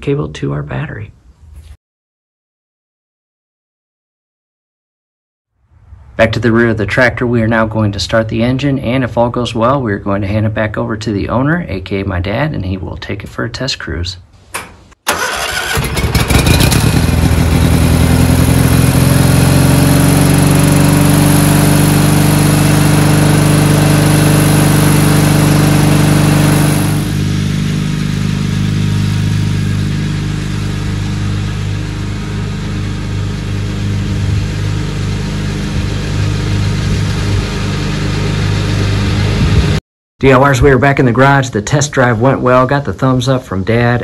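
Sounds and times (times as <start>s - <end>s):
garden tractor engine running: 15.1s - 39.8s.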